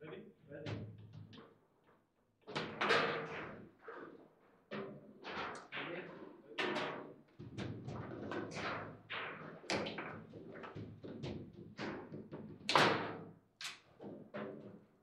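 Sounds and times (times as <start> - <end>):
foosball ball and players knocking: 6.7 - 13.3.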